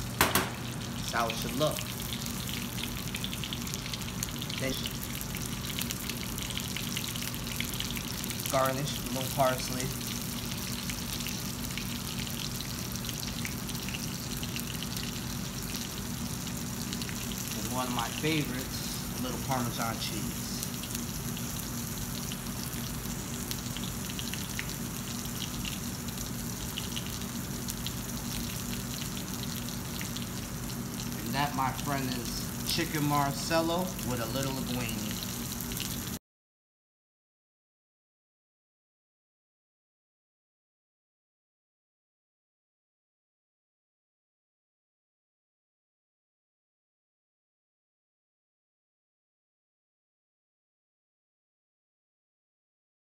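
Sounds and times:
constant low hum: 0.0 - 36.2
hot oil sizzling: 0.0 - 36.2.

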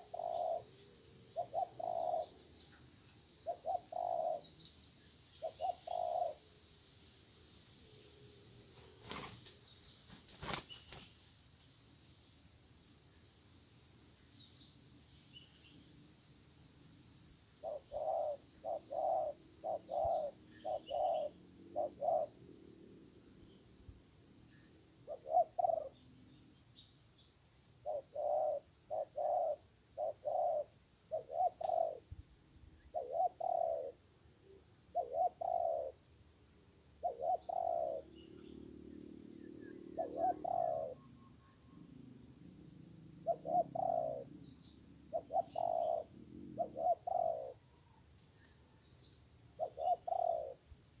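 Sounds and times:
dove cooing: 0.0 - 2.8, 3.4 - 4.5, 5.4 - 6.4, 17.6 - 22.9, 25.0 - 26.1, 27.8 - 32.2, 32.8 - 36.0, 37.0 - 48.0, 49.5 - 50.7
small birds chirping: 0.0 - 6.8, 9.0 - 11.4, 16.9 - 51.0.

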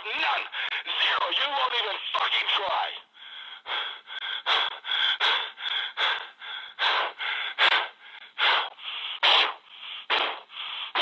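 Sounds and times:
person breathing hard: 0.5 - 0.9, 3.1 - 11.0.

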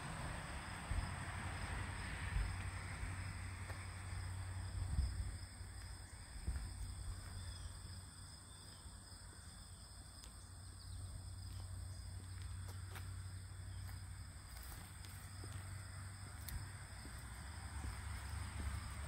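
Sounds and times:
crickets chirping: 0.0 - 19.0
wind rumble on microphone: 4.7 - 7.5.

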